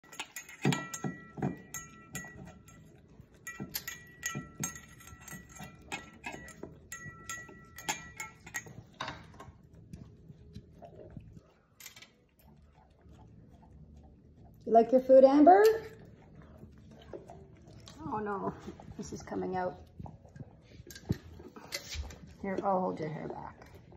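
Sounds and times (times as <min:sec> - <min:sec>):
clinks against metal bowls: 0:00.0 - 0:09.6
dogs crunching food: 0:00.0 - 0:23.9.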